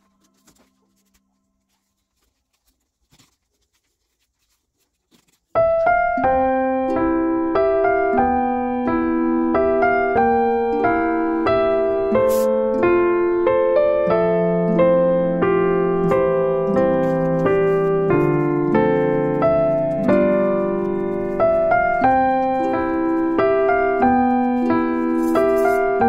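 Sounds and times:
keyboard piano tune: 5.6 - 26.0.

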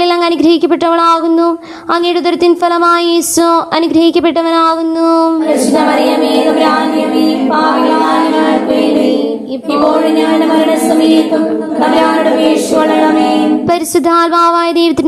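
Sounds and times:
women singing prayer in unison: 5.2 - 14.0.

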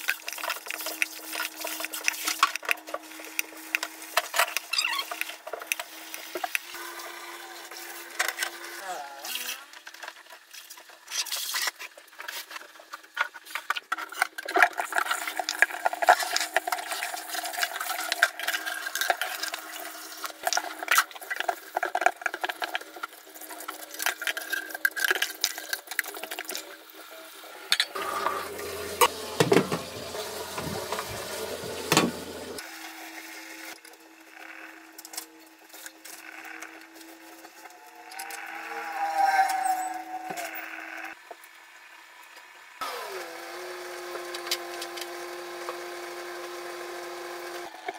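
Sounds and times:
tap running: 28.0 - 32.6
dishes clattering in a sink: 29.0 - 32.3.

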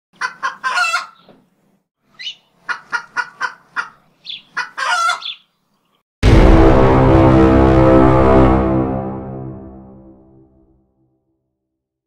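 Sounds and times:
chicken clucking: 0.2 - 1.5, 2.2 - 5.6.

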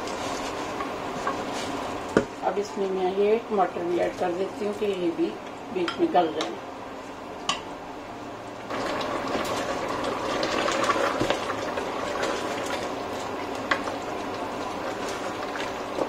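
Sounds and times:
curry sizzling in a pot: 8.4 - 16.0.

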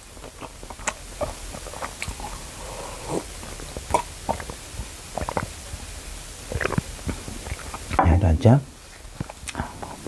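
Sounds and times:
man gulping drink: 0.2 - 5.6, 6.4 - 8.0.

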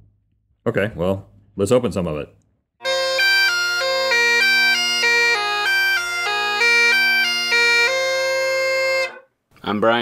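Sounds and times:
bagpipes playing a tune: 2.8 - 9.3.

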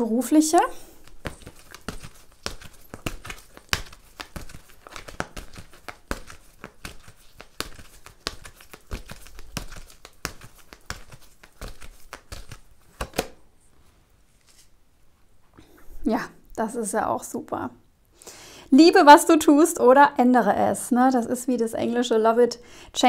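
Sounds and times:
cards being shuffled: 0.6 - 13.4.

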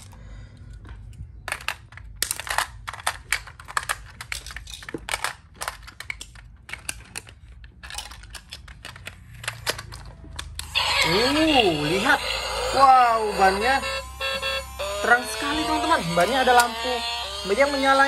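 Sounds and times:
small plastic clicks and rattles: 0.0 - 10.7.

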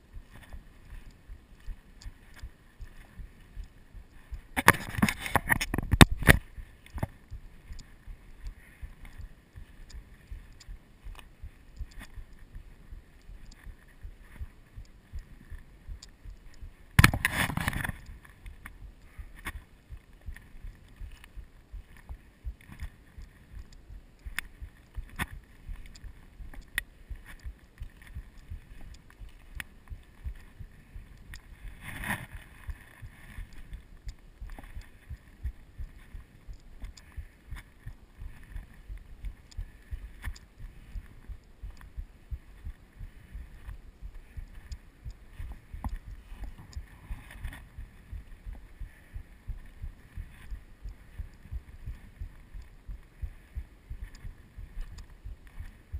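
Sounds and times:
footsteps on dry grass and rocks: 0.0 - 55.9.

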